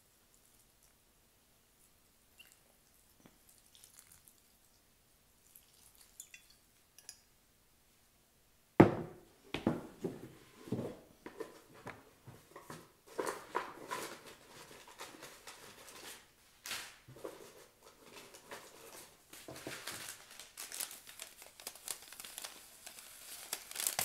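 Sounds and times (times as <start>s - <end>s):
faint dripping and pattering: 0.0s - 1.1s, 1.7s - 7.3s
water pouring onto soil: 3.5s - 4.5s, 5.4s - 6.2s
loud thump on table: 8.8s - 9.9s
knocks of things handled: 8.8s - 14.2s.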